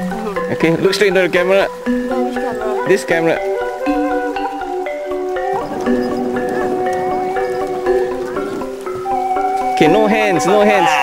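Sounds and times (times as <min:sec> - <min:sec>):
melody of held notes: 0:00.0 - 0:11.0.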